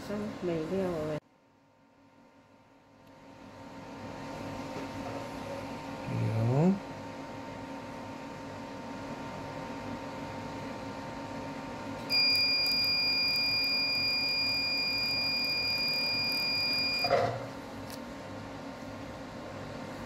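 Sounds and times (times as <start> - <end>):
high-pitched laser beep: 12.1 - 17.1.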